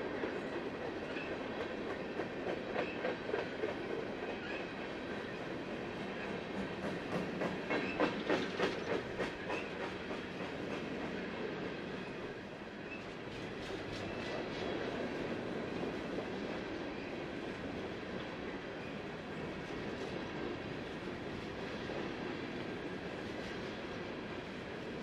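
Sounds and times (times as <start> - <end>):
train wheel clacks: 0.0 - 12.0, 13.0 - 16.8
freight train rumble: 0.0 - 25.0.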